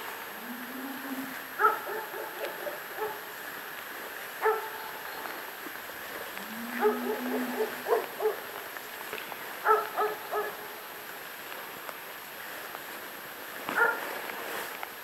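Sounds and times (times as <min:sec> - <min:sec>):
dog barking: 0:01.6 - 0:03.2, 0:04.4 - 0:04.8, 0:06.8 - 0:08.4, 0:09.6 - 0:10.6, 0:13.8 - 0:14.0.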